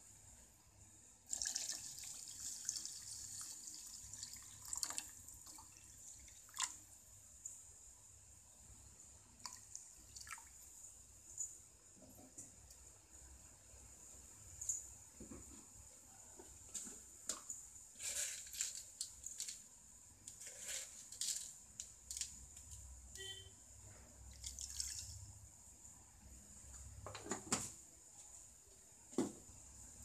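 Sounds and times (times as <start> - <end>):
pot simmering and bubbling: 1.2 - 7.6.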